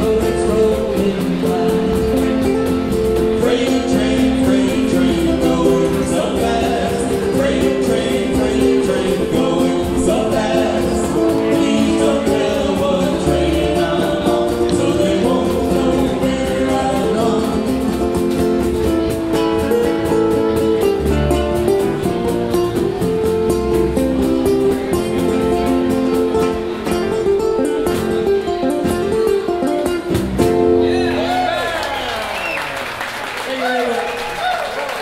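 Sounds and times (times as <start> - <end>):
person singing: 0.0 - 18.4
strummed ukuleles: 0.0 - 32.5.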